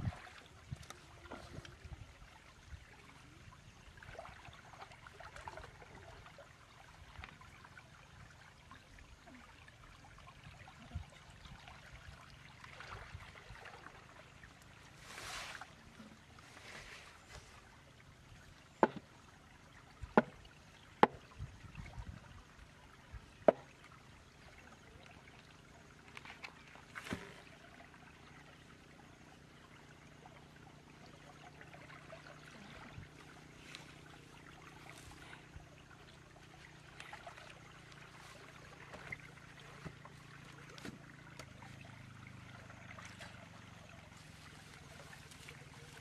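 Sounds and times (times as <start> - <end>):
muddy water trickling and splashing: 0.0 - 46.0
hoe knocking on muddy bank: 18.8 - 19.1, 20.0 - 20.4, 21.0 - 21.3, 23.4 - 23.7.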